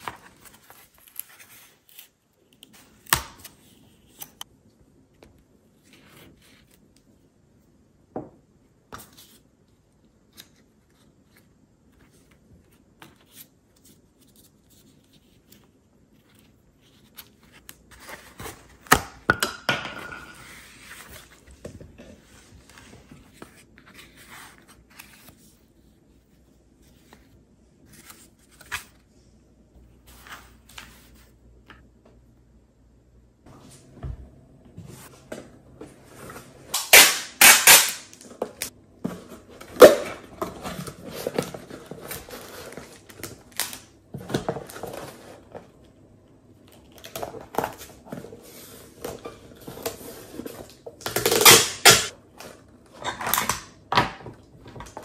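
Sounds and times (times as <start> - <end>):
packing tape ripping off roll: 36.8 - 38.2, 51.1 - 52.1.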